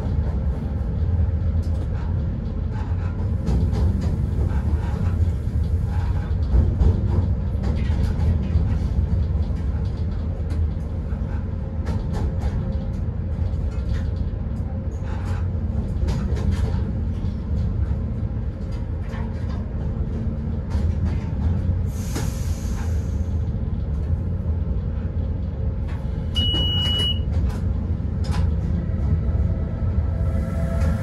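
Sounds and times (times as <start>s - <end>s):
locomotive low rumble: 0.0s - 31.0s
air hiss: 21.9s - 23.3s.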